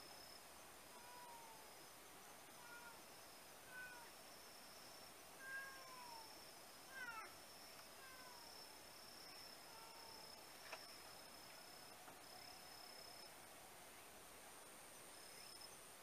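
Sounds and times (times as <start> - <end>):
faint cat meows: 0.9 - 1.7, 2.5 - 4.2, 5.4 - 8.6, 9.6 - 10.4.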